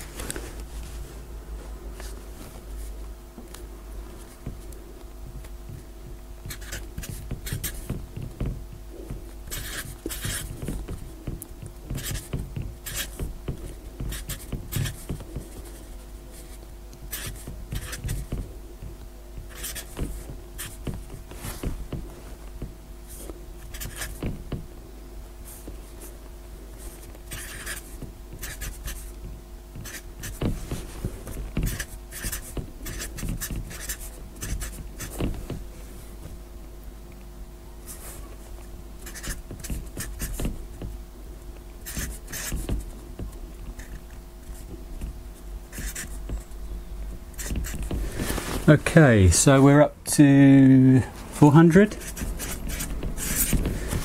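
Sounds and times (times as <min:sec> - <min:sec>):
steady low hum: 0:00.0 - 0:54.0
marker scratching on paper: 0:06.4 - 0:08.0, 0:09.5 - 0:11.0, 0:11.9 - 0:18.4, 0:19.4 - 0:21.8, 0:23.1 - 0:24.3, 0:26.8 - 0:29.1, 0:29.8 - 0:35.4, 0:39.0 - 0:40.5, 0:41.8 - 0:42.9, 0:45.7 - 0:46.5, 0:47.4 - 0:48.5, 0:51.4 - 0:54.0.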